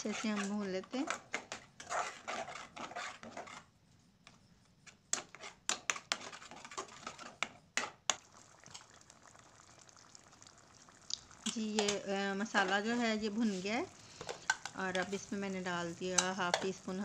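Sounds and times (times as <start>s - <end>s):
metal spatula scraping a pan: 0.0s - 3.7s, 5.1s - 8.0s, 11.5s - 17.0s.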